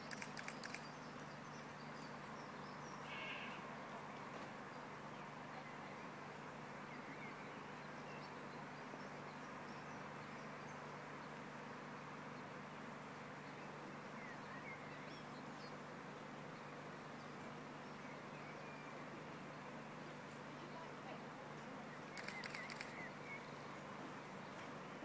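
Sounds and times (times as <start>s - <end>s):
faint bird chirps: 0.0s - 3.7s, 22.0s - 23.8s.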